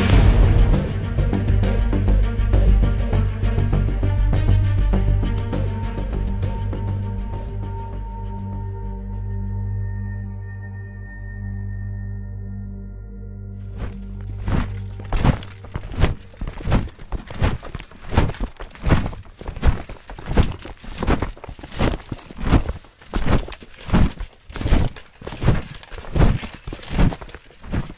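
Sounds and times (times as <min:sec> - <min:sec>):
heavy rhythmic thuds: 0:13.7 - 0:27.9.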